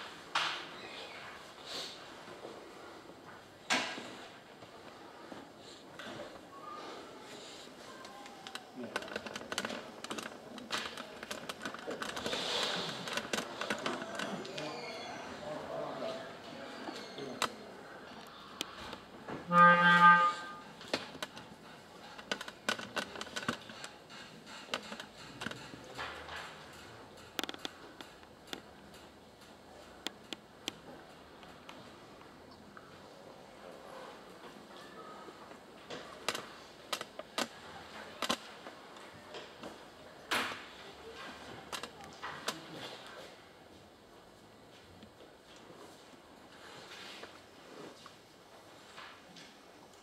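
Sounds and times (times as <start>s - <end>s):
clarinet note: 19.5s - 20.6s.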